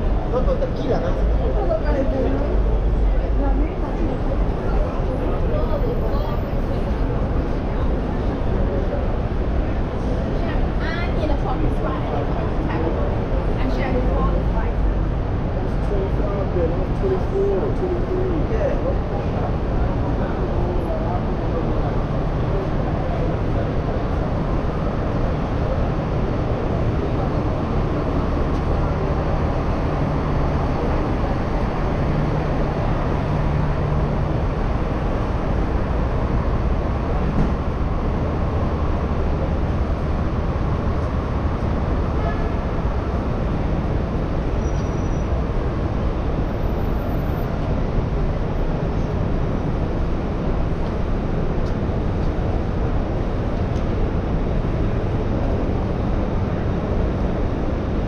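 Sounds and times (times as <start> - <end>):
city street traffic: 0.0 - 58.0.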